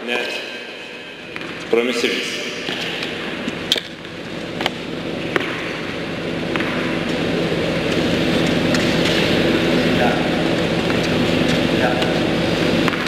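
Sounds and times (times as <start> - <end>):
hall hum: 0.0 - 13.0
tennis ball bouncing on hard court: 4.6 - 5.9, 6.5 - 7.3, 12.8 - 13.0.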